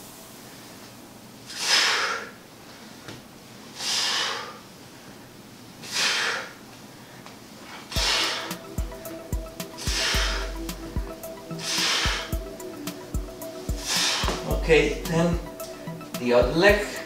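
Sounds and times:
man exhaling heavily: 0:01.5 - 0:02.4, 0:03.8 - 0:04.7, 0:05.8 - 0:06.6, 0:07.8 - 0:12.5.

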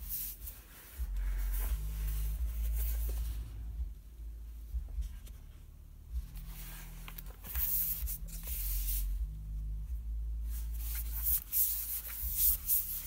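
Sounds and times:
low rumble: 0:00.0 - 0:11.4.

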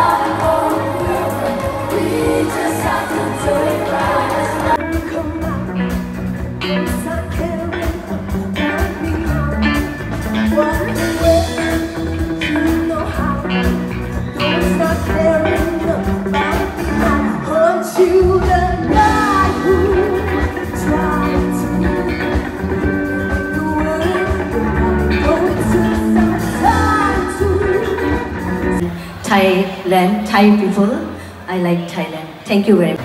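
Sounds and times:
lead vocal singing: 0:00.0 - 0:28.8
drum kit: 0:00.0 - 0:28.9
electric guitars: 0:00.0 - 0:29.8
pop-rock band music: 0:00.0 - 0:29.9.

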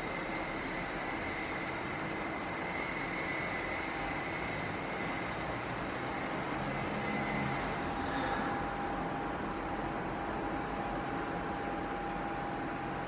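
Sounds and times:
outside noise: 0:00.0 - 0:13.0
table fan rushing air: 0:00.0 - 0:13.0.

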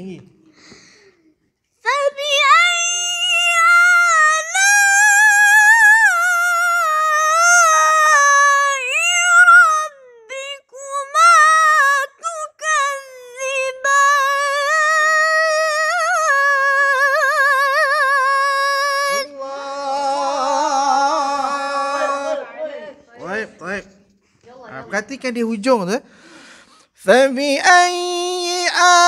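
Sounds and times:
boy chanting melodically: 0:01.8 - 0:23.5, 0:27.0 - 0:29.0
man chanting: 0:16.8 - 0:23.9, 0:27.0 - 0:29.0.

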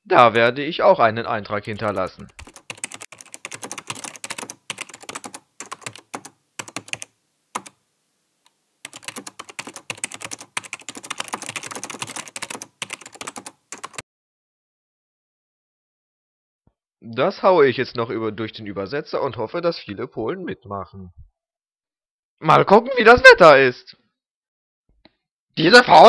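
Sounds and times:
typing on computer keyboard: 0:01.6 - 0:07.8, 0:08.9 - 0:14.0.

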